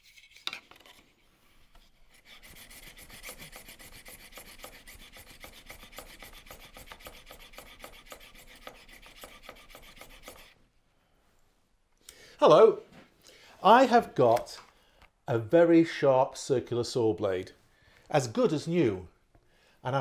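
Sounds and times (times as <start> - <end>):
hand file rubbing saw tooth: 1.7 - 10.6.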